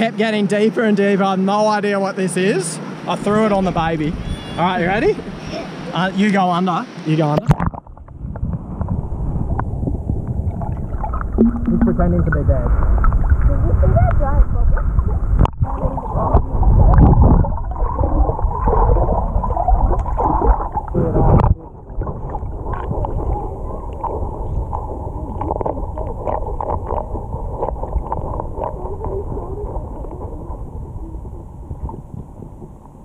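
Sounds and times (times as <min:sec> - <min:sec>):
underwater water wash: 0:06.7 - 0:33.0
underwater low rumble: 0:07.5 - 0:33.0.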